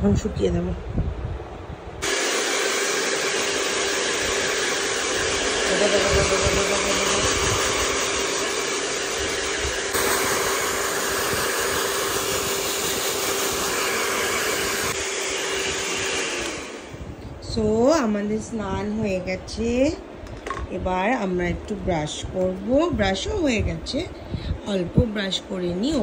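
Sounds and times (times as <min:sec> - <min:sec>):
hair dryer blowing: 0:02.0 - 0:17.2.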